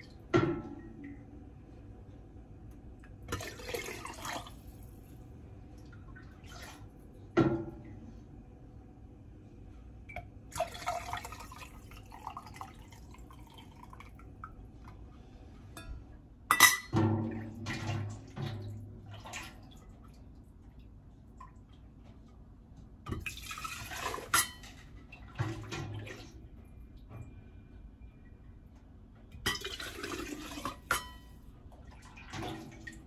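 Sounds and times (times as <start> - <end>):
liquid pouring and splashing: 3.0 - 7.1, 10.5 - 15.0, 16.9 - 22.3, 23.1 - 26.5, 29.5 - 33.0
ladle clinking on metal and glass: 15.8 - 17.0.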